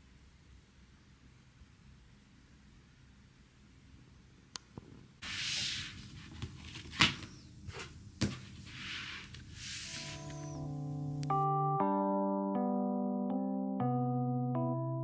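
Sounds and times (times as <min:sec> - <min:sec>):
soft electric piano music: 0:09.8 - 0:15.0.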